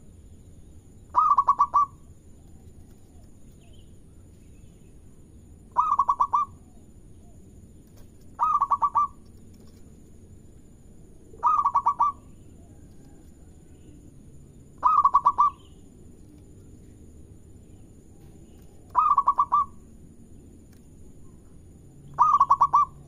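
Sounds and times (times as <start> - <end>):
dove cooing: 1.1 - 3.3, 5.7 - 7.4, 8.4 - 9.7, 11.3 - 13.3, 14.8 - 15.8, 18.2 - 19.8, 22.1 - 23.0.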